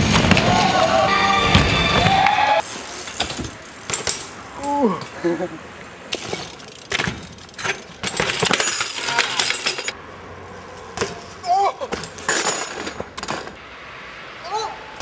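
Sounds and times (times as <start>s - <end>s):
bike clanking on concrete: 2.6s - 5.3s, 6.1s - 10.0s, 10.8s - 13.6s
person shouting: 14.4s - 15.0s.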